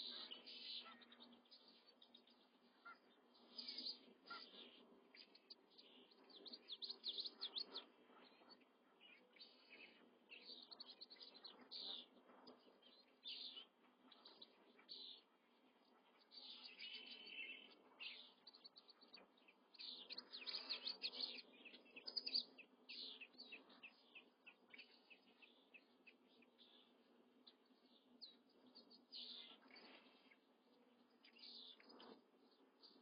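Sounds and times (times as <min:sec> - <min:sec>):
chicks peeping: 0:00.0 - 0:08.8, 0:16.1 - 0:27.8
faint steady background noise: 0:00.0 - 0:33.0.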